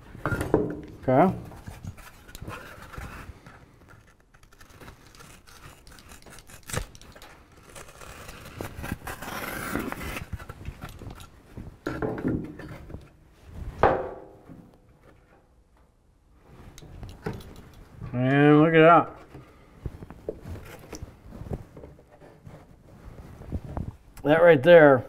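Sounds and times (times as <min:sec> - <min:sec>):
utility knife cutting foam board: 0:04.0 - 0:10.5.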